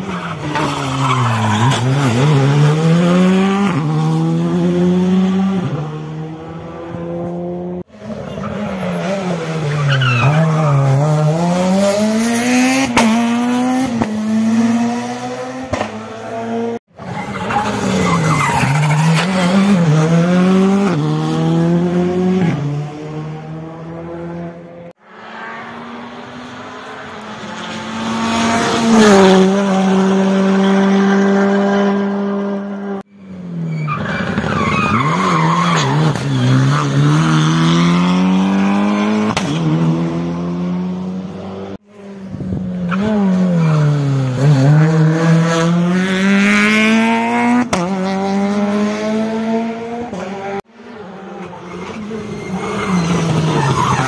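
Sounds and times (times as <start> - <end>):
rally car engines revving: 0.0 - 54.0
tyre squeal: 17.0 - 19.4, 33.1 - 37.0, 51.4 - 54.0.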